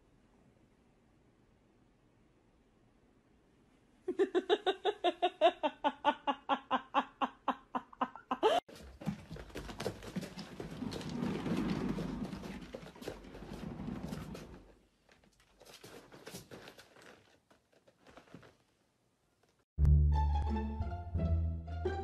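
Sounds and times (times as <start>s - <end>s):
cat exercise wheel rumbling: 8.7s - 17.4s.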